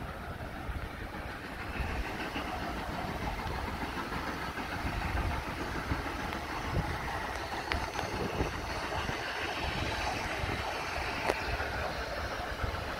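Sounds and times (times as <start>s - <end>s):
wind buffeting microphone: 0.0s - 12.9s.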